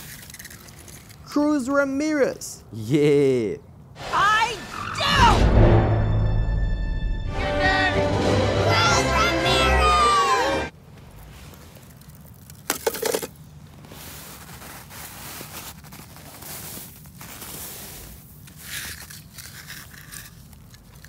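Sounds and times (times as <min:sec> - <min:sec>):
hand digging through snow: 0:13.6 - 0:19.8.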